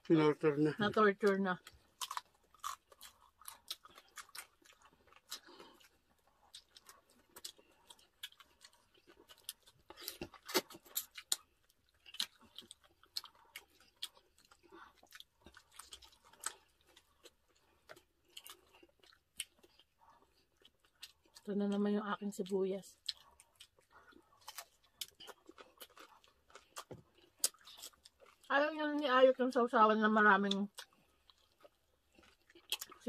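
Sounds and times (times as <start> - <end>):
mouth smacks and chewing: 1.6 - 21.5, 23.0 - 28.5, 30.4 - 33.0
crunching bites: 2.0 - 5.9.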